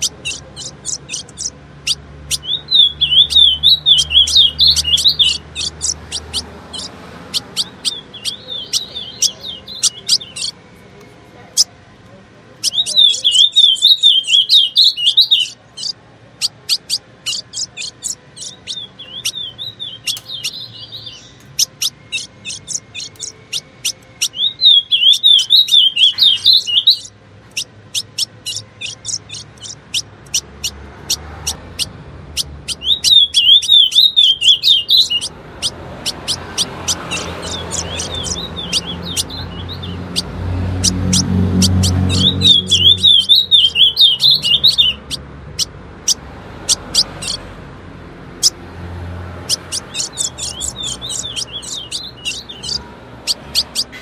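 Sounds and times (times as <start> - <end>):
bird warbling phrase: 0.0 - 10.6, 12.6 - 27.1
bird chip notes: 0.0 - 11.7, 12.6 - 45.2, 46.7 - 47.4, 49.5 - 54.0.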